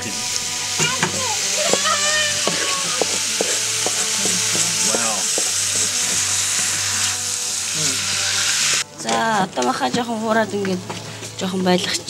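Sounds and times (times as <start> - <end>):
meat sizzling in a pot: 0.0 - 9.4.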